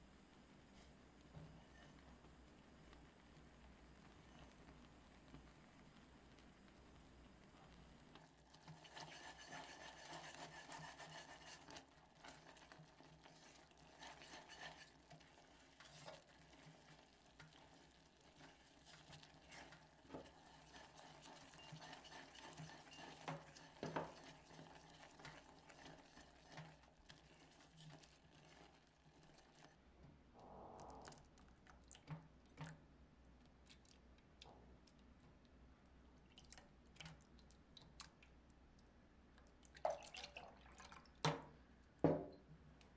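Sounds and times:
caramel bubbling: 0:00.0 - 0:42.0
spatula scraping saucepan: 0:08.5 - 0:29.7.

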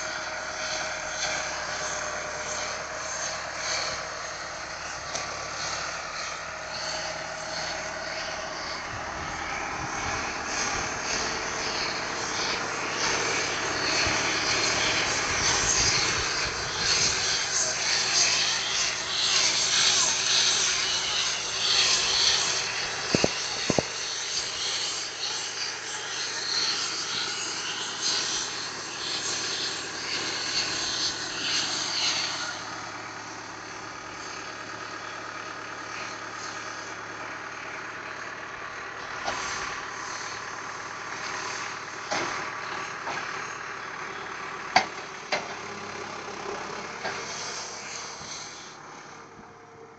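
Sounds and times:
tractor engine running: 0:00.0 - 0:49.9
sharp knocks and clanks: 0:23.1 - 0:24.0, 0:42.1 - 0:43.3, 0:44.7 - 0:45.6.

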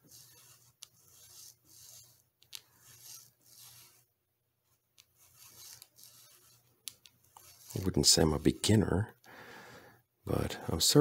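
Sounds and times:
sandpaper rasping strokes: 0:00.0 - 0:04.1, 0:05.2 - 0:08.9.

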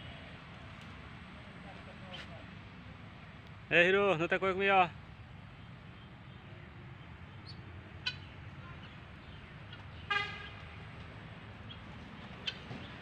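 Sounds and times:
short honk: 0:10.1 - 0:10.6.

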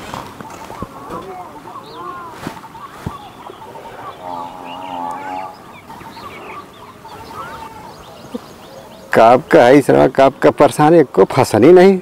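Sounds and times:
small birds chirping: 0:00.0 - 0:11.8
chicken wavering call: 0:00.6 - 0:09.0.

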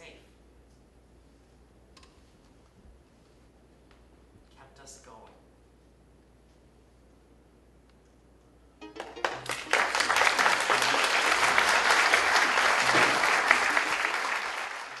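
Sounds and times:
audience applauding: 0:08.9 - 0:15.0.

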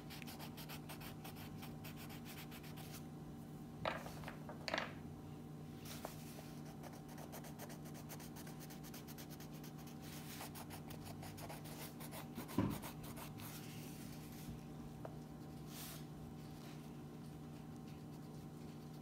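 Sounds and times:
crayon scratching on paper: 0:06.6 - 0:13.6
soft thump: 0:12.5 - 0:12.8.

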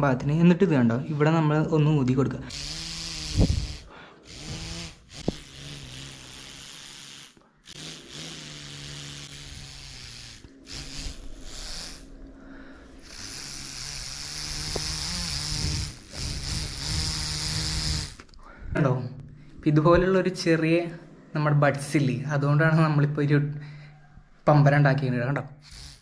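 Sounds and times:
breath blowing with low buzz: 0:02.5 - 0:19.6.

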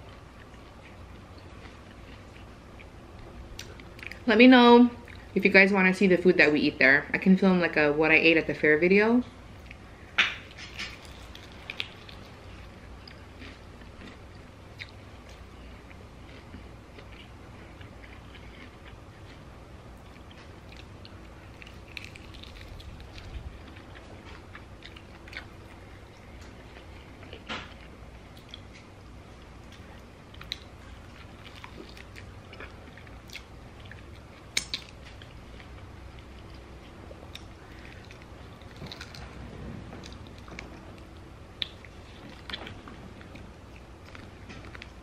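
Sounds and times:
chewing and biting chicken wings: 0:10.4 - 0:28.8, 0:29.6 - 0:39.4
small clicks and snaps: 0:34.6 - 0:35.2.

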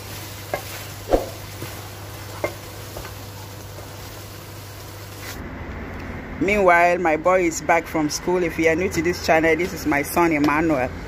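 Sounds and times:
sauce frying hiss: 0:00.0 - 0:05.4.

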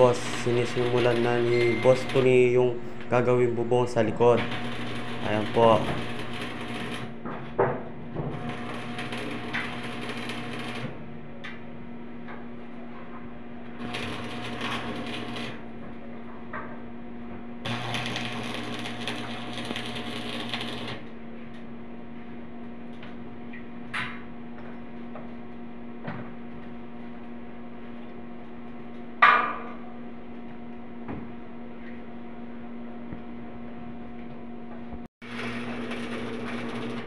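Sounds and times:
welding arc crackling: 0:00.0 - 0:07.2, 0:08.3 - 0:11.0, 0:13.8 - 0:15.6, 0:17.6 - 0:21.0, 0:35.2 - 0:37.0
steady low hum: 0:00.0 - 0:37.0.

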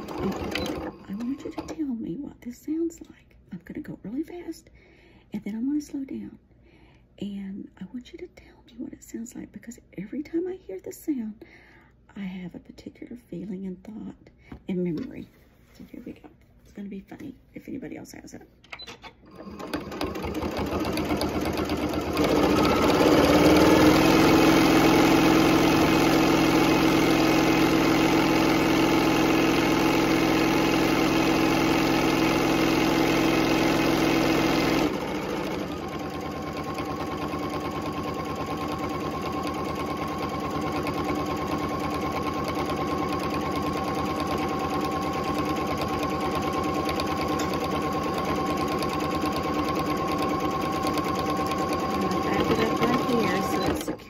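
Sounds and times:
electric sewing machine stitching: 0:00.0 - 0:02.0, 0:19.0 - 0:54.0.

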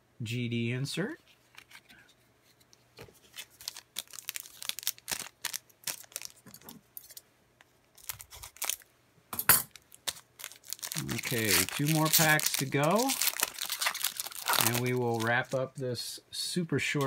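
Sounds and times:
foil wrapper crinkling: 0:03.3 - 0:06.6, 0:07.9 - 0:08.9, 0:09.7 - 0:15.8
scissors cutting foil pack: 0:10.0 - 0:15.3.

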